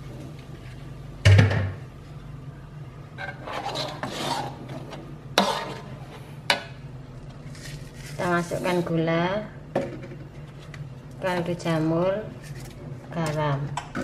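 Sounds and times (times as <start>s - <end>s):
low steady hum: 0.0s - 14.0s
metal spatula scraping a wok: 3.2s - 6.2s.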